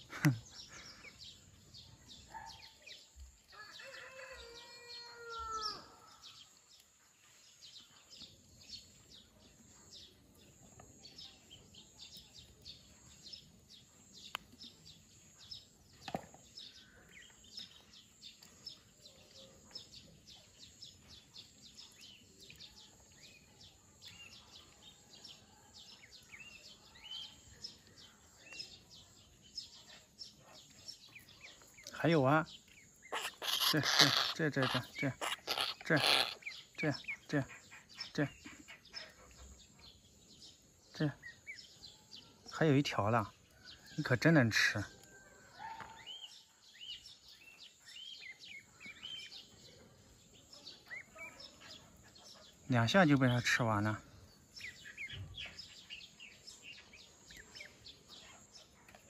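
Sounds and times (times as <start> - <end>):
drawn-out bird call: 33.1 - 39.0.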